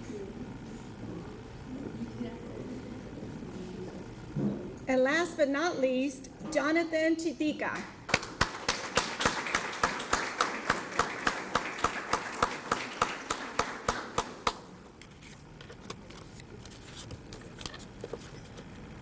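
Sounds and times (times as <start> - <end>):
sharp hand claps nearby: 7.8 - 14.7
audience applauding: 8.1 - 14.7.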